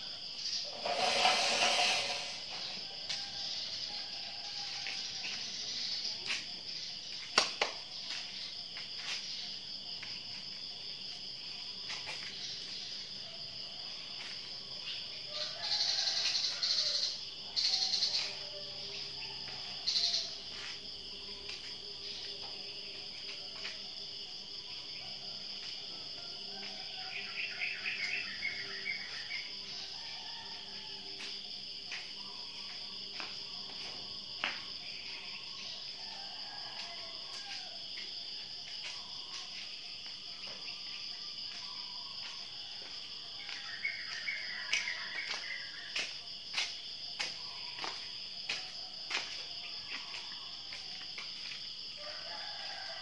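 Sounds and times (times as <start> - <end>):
insect chirping notes: 0.0 - 23.3
high-pitched insect chirring: 0.4 - 2.9, 19.8 - 20.7.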